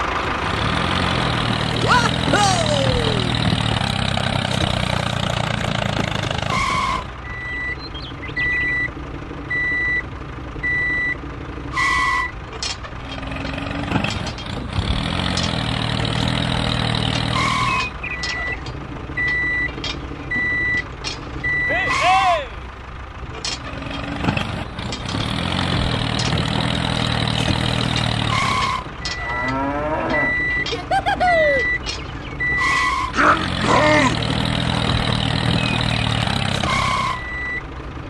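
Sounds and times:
tractor engine running: 0.0 - 38.0
reversing alarm beeps: 6.6 - 8.9, 9.5 - 10.0, 10.6 - 11.2, 19.2 - 20.8, 21.4 - 22.0, 30.1 - 30.7, 31.6 - 33.2, 36.7 - 37.6.

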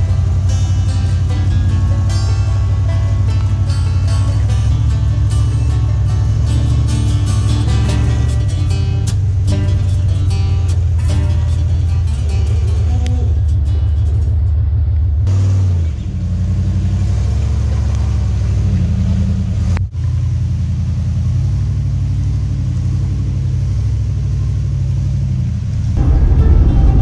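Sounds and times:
truck engine at low revs: 0.0 - 27.0.

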